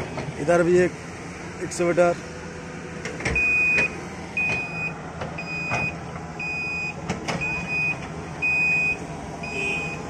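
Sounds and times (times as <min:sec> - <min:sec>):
heavy diesel machinery running: 0:00.0 - 0:10.0
reversing alarm beeping: 0:03.3 - 0:10.0.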